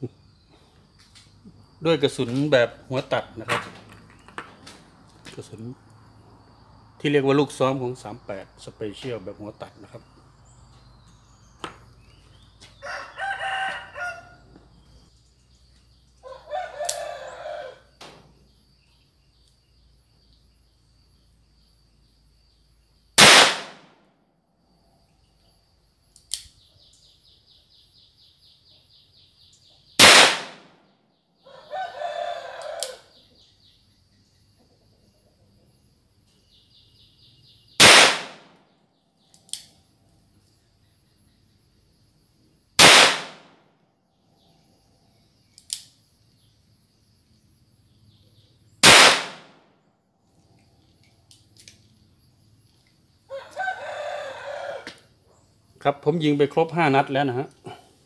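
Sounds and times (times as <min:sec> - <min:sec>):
revolver gunshots: 0:23.2 - 0:24.0, 0:30.0 - 0:30.8, 0:37.8 - 0:38.6, 0:42.8 - 0:43.6, 0:48.8 - 0:49.6.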